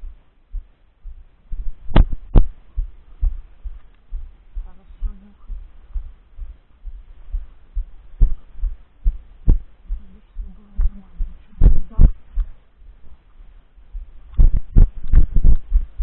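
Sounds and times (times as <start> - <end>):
footsteps thudding: 0.6 - 4.7, 5.5 - 10.1.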